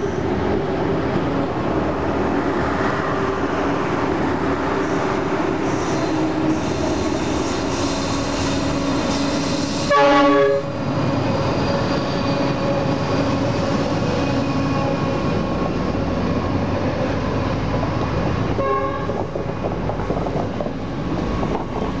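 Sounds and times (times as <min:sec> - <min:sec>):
freight train rumbling past: 0:00.0 - 0:22.0
locomotive horn blast: 0:09.9 - 0:10.7, 0:18.6 - 0:19.2.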